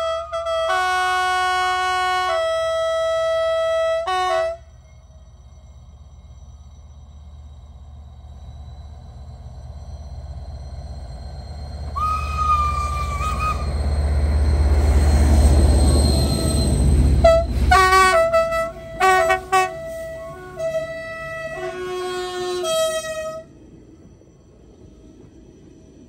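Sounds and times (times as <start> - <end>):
locomotive horn blast: 0.0 - 4.7, 16.2 - 23.5
steam whistle blasts: 0.0 - 4.7, 11.9 - 23.5.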